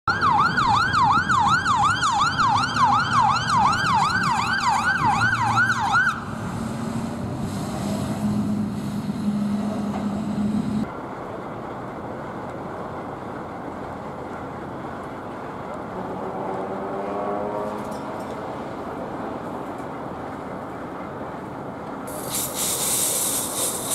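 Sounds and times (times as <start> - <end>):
fire engine siren wailing: 0.1 - 10.9.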